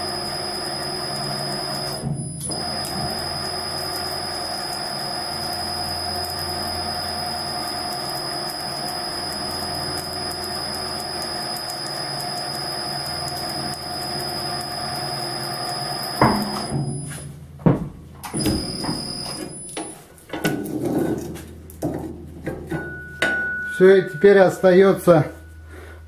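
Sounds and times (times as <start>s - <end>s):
forging machine drive drone: 0.0s - 17.2s, 18.3s - 19.8s.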